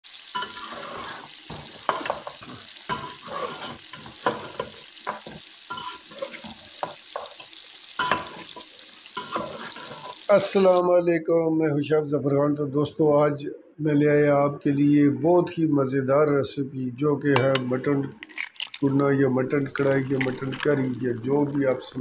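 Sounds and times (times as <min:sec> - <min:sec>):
meat sizzling in oil: 0:00.0 - 0:10.8
metal ladle scraping a pot: 0:00.3 - 0:07.4, 0:08.0 - 0:10.3.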